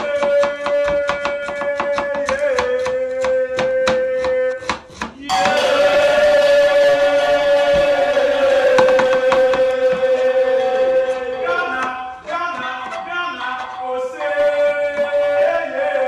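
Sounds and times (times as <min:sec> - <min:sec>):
knife chopping on cutting board: 0:00.0 - 0:06.4
background music with singing: 0:05.3 - 0:16.0.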